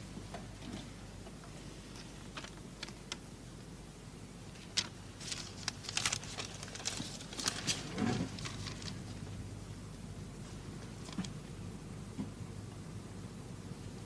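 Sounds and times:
paper rustling: 1.9s - 3.1s, 4.5s - 9.3s.

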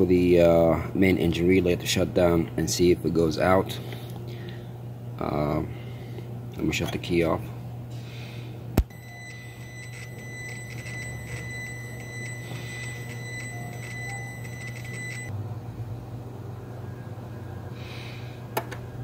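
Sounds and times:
low steady hum: 0.0s - 19.0s
high-pitched electronic tone: 8.9s - 15.3s.

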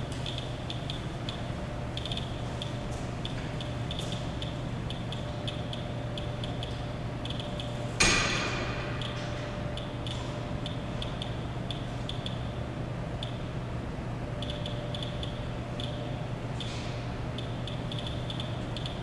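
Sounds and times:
geiger counter clicking: 0.2s - 7.8s, 8.9s - 12.5s, 13.2s - 13.4s, 14.4s - 16.1s, 17.4s - 19.0s.

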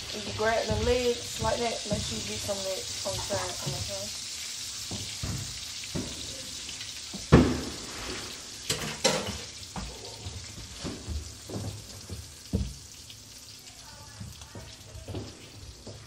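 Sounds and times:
food sizzling in a pan: 0.0s - 16.0s
kitchenware knocking: 8.7s - 9.4s.

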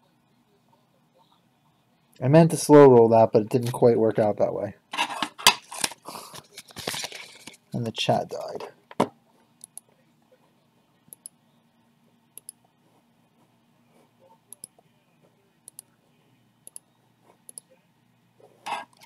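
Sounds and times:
computer mouse clicking: 12.4s - 12.6s, 14.5s - 14.8s, 16.6s - 16.8s.

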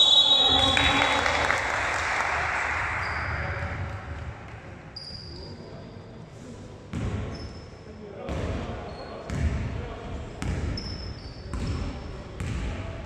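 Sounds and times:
sneaker squeaks on floor: 5.0s - 6.0s, 7.0s - 7.8s, 8.8s - 9.4s, 10.4s - 11.9s
basketball bouncing: 10.4s - 10.8s, 11.5s - 11.8s, 12.4s - 12.7s.

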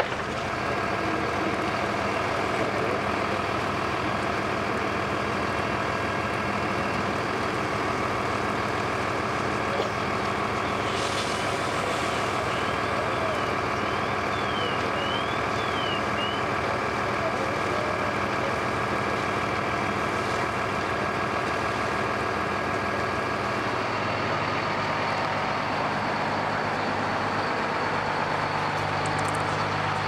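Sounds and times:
fire engine drone: 0.0s - 30.0s
hiss: 10.8s - 12.6s.

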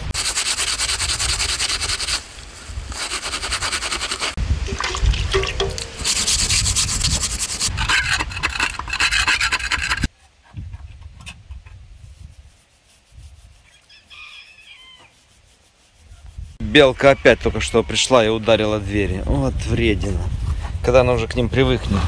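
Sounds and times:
loud rough scraping: 0.0s - 10.1s.

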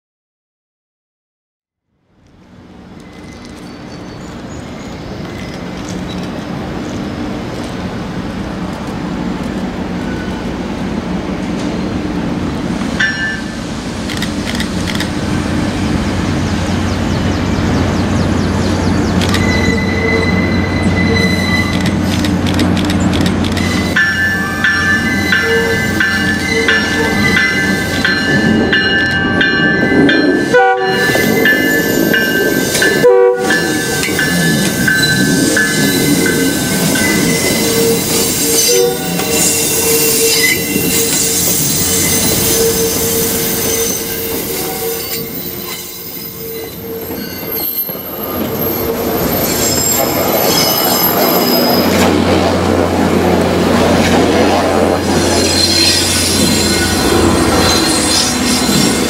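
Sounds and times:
diesel locomotive engine drone: 1.8s - 59.0s
train wheels squealing on rails: 2.8s - 6.5s, 9.9s - 10.6s, 16.1s - 52.5s, 53.8s - 59.0s
train horn: 30.4s - 31.3s, 32.8s - 34.2s, 37.4s - 45.4s.

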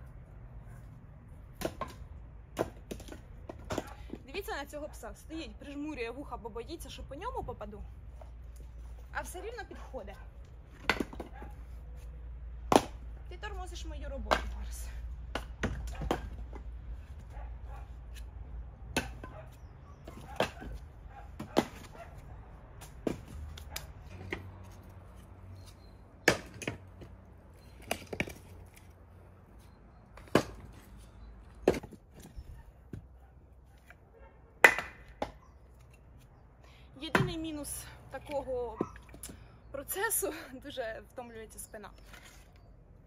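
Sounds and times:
logs knocking onto woodpile: 1.6s - 4.2s, 10.7s - 11.5s, 12.7s - 13.0s, 15.3s - 16.7s, 21.4s - 22.0s, 22.8s - 24.4s, 26.2s - 27.1s, 30.2s - 30.8s, 31.6s - 33.1s, 37.1s - 37.5s.

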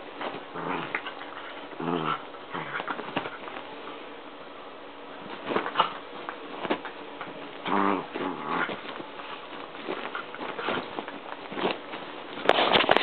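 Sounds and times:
dogs scuffling: 0.0s - 4.1s, 5.1s - 13.0s
dog growling cry: 0.5s - 3.0s, 7.6s - 8.9s
clicks of mouths and paws: 8.6s - 13.0s.

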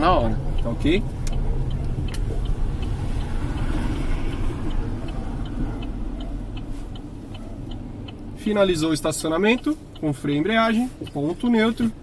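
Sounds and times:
car engine rumbling: 0.0s - 12.0s
car turn signal ticking: 0.0s - 12.0s.

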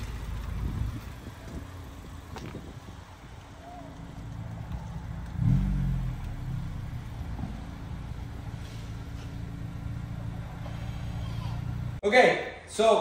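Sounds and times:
car engine idling: 0.0s - 12.0s.

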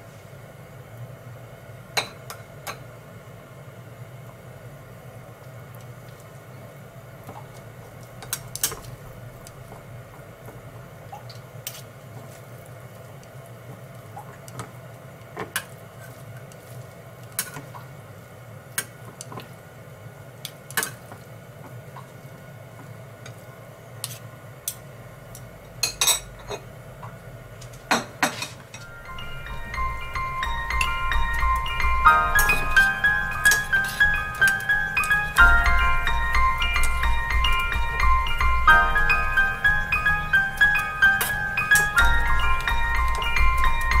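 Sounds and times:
low hum: 28.8s - 44.0s.

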